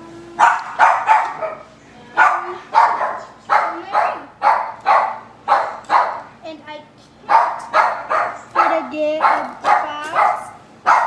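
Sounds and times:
dog barking: 0.4 - 6.3, 7.3 - 11.0.

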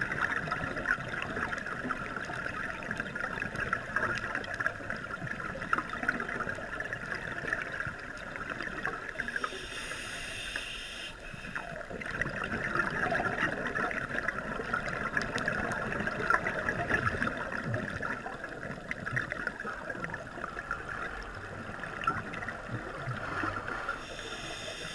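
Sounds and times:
underwater crackling: 0.0 - 24.9
scuba regulator breathing: 9.3 - 11.8, 23.1 - 24.9
hiss: 9.4 - 11.6, 23.9 - 24.9
gurgle of exhaled bubbles: 11.6 - 24.0.

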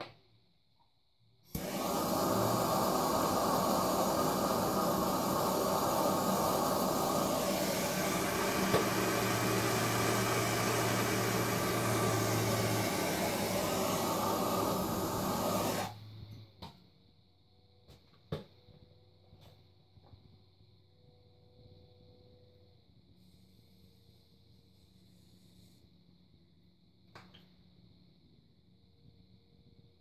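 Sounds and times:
gas torch flame hissing: 1.4 - 16.3.

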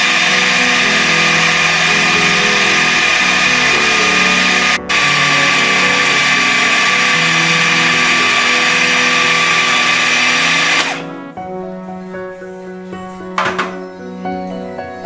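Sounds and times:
food processor motor grinding: 0.0 - 11.1
background music: 0.0 - 15.0.

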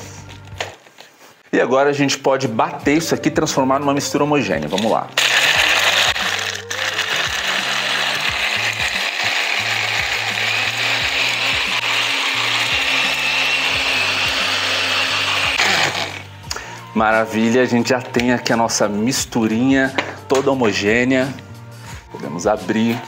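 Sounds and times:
blender crushing ice: 4.8 - 16.3.

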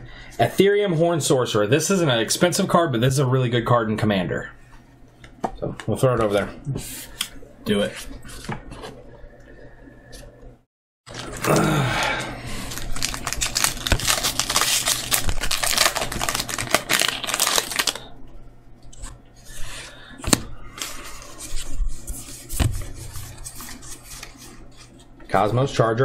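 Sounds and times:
foil wrapper crinkling and tearing: 12.5 - 18.1
card handling: 12.7 - 18.0, 20.2 - 25.1.

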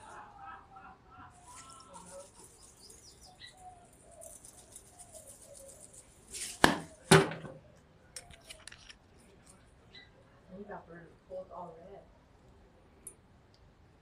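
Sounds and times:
granules hissing from shaker: 1.4 - 3.4.

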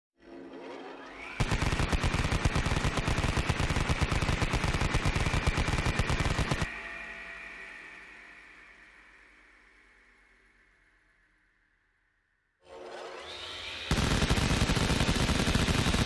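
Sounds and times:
high steady whine: 1.1 - 11.4
rapid automatic gunfire: 1.4 - 6.7, 13.9 - 16.0.

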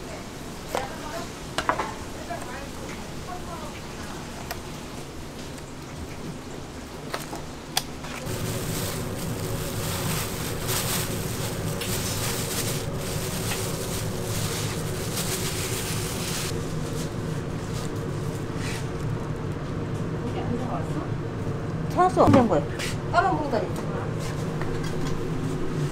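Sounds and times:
low machine hum: 2.2 - 25.9
flour shaken from plastic bag: 8.2 - 19.0.

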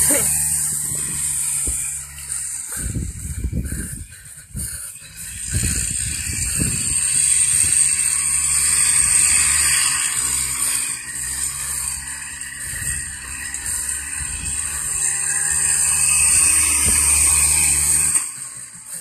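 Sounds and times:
atv engine revving: 0.0 - 19.0.

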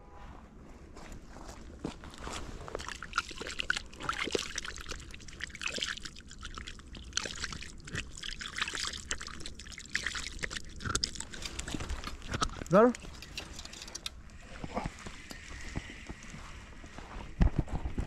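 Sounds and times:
water trickling in mud: 1.6 - 17.0.

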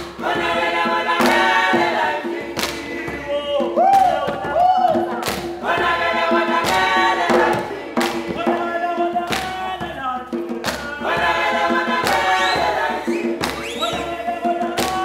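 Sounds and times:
choir singing: 0.0 - 10.0, 10.8 - 15.0
sharp percussive hits: 0.0 - 15.0.

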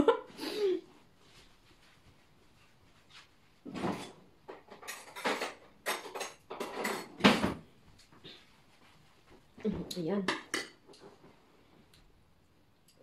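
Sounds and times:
metal cutlery clattering: 3.9 - 7.5.

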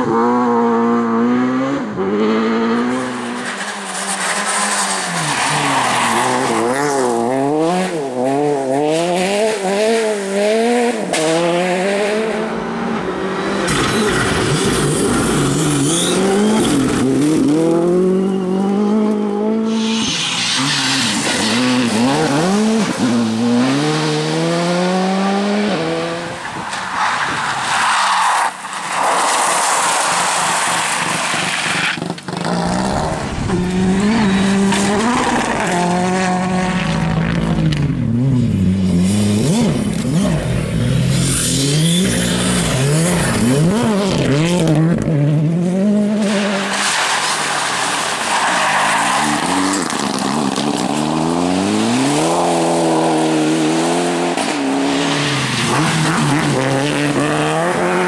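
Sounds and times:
rally car engines revving: 0.0 - 58.0
gravel spraying off tyres: 3.3 - 7.1, 26.7 - 32.4, 46.2 - 51.1.

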